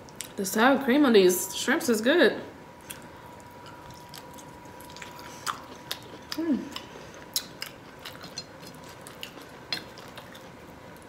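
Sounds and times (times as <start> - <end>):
person chewing: 2.8 - 11.0.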